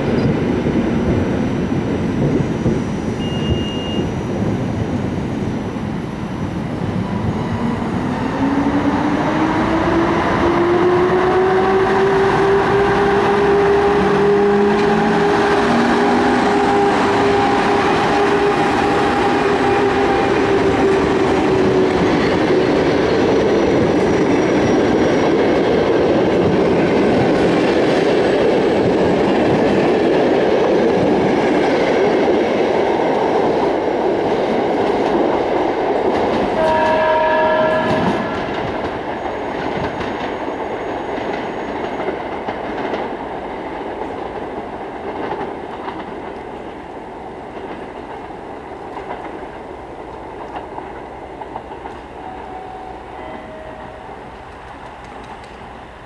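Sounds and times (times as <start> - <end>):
train coaches rolling on rails: 0.0 - 56.0
horn-like tone: 3.2 - 4.3, 36.6 - 38.6, 52.2 - 54.2.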